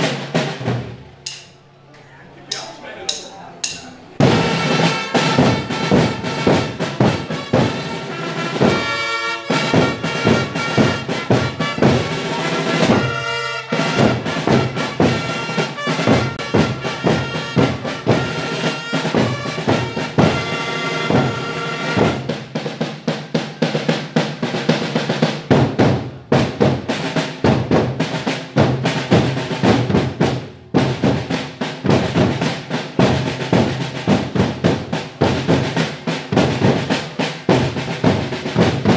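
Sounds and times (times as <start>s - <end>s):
snare drums rolling: 0.0s - 1.6s, 2.5s - 38.9s.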